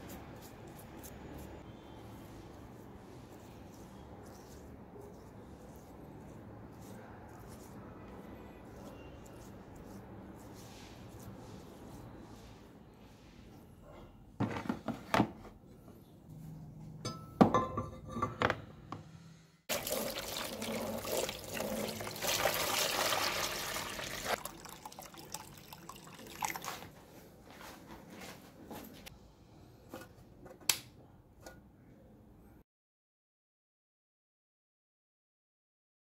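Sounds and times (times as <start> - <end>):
water pouring into plastic tub: 19.7 - 26.8.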